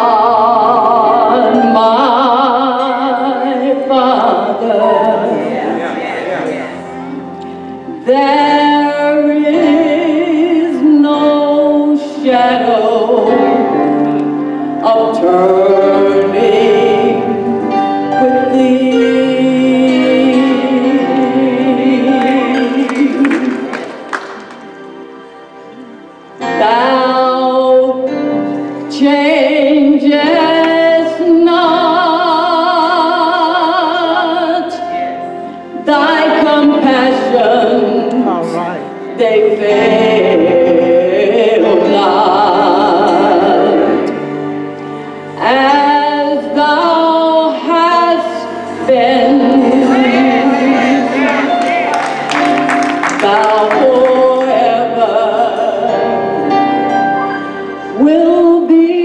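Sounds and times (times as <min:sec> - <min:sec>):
woman singing gospel: 0:00.0 - 0:06.0, 0:08.0 - 0:14.0, 0:14.8 - 0:23.8, 0:28.9 - 0:34.9, 0:45.4 - 0:51.7, 0:52.4 - 0:56.2
band accompaniment: 0:12.6 - 0:29.2, 0:34.8 - 0:59.0.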